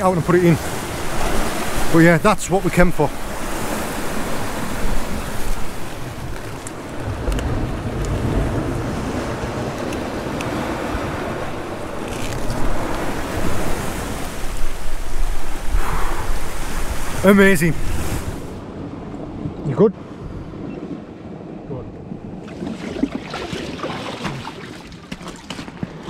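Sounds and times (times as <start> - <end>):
sea swell washing over rocks: 0.0 - 18.6
wind buffeting microphone: 0.0 - 26.0.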